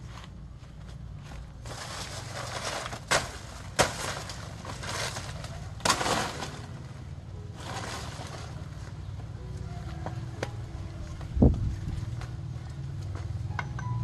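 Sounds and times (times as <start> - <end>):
leaves rustling: 1.6 - 9.2.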